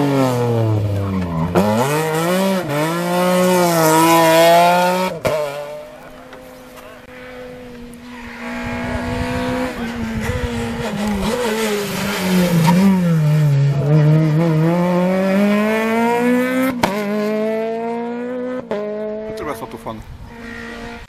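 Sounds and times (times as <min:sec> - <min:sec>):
rally car engine accelerating: 0:00.0 - 0:21.0.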